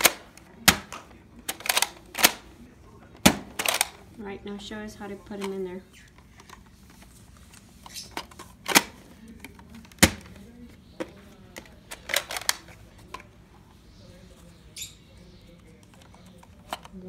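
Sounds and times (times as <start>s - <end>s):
plastic toy blaster clicks: 1.5s - 2.4s, 3.6s - 4.0s.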